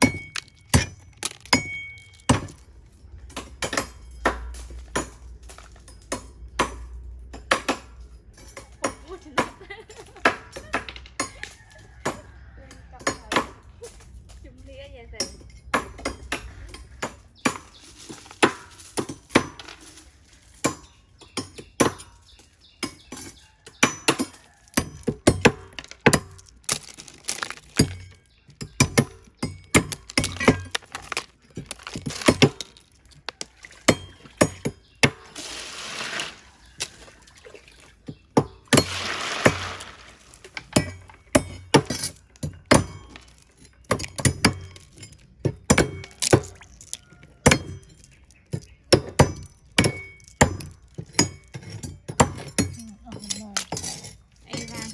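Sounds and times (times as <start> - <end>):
shells clinking and rattling: 0.0 - 7.4, 21.6 - 34.7, 40.1 - 54.9.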